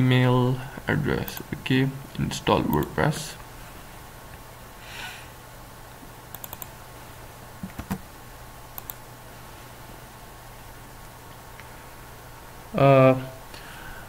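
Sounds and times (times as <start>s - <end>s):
computer keys or mouse clicking: 6.3s - 6.7s, 7.6s - 8.0s, 8.8s - 9.0s.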